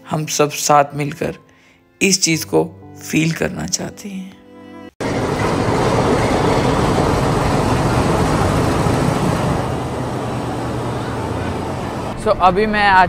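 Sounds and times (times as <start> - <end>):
diesel locomotive idling: 5.0 - 12.3.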